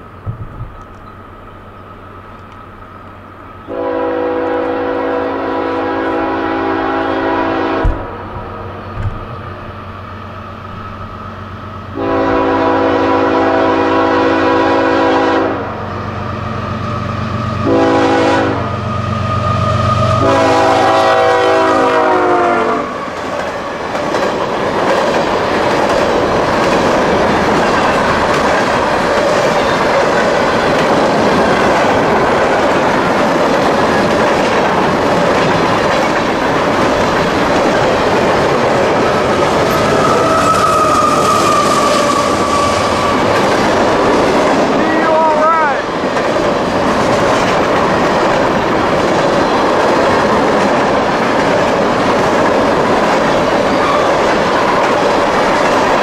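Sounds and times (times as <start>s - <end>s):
locomotive air horn blasts: 3.7s - 8.1s, 12.0s - 15.8s, 17.6s - 23.0s
freight cars wheels on rails: 22.9s - 56.0s.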